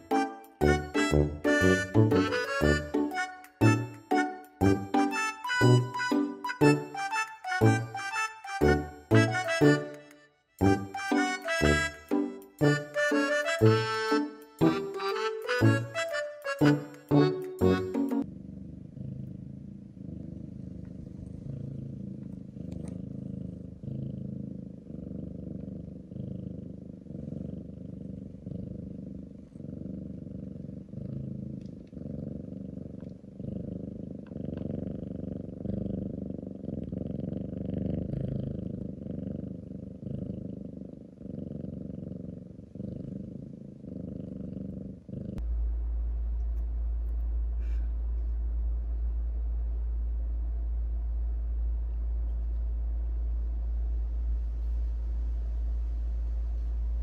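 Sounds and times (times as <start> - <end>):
cat purring: 0.0 - 10.0, 10.6 - 57.0
steady low hum: 42.4 - 57.0.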